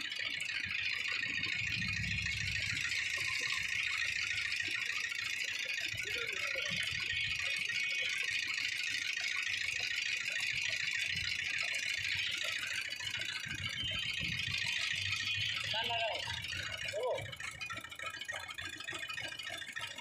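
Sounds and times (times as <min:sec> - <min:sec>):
juice roller machine running: 0:00.0 - 0:20.0
low street rumble: 0:01.3 - 0:04.6.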